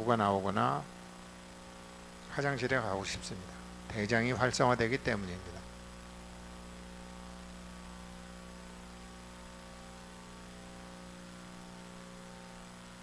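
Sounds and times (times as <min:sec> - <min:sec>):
electrical mains hum: 0:00.0 - 0:13.0
faint hiss: 0:00.0 - 0:13.0.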